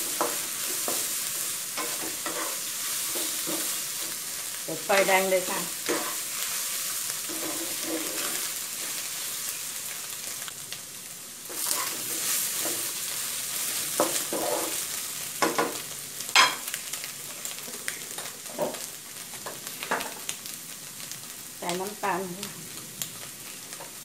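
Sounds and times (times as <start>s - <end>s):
wooden spatula scraping wok: 0.0s - 9.5s, 11.5s - 15.8s
food sizzling in oil: 0.0s - 24.0s.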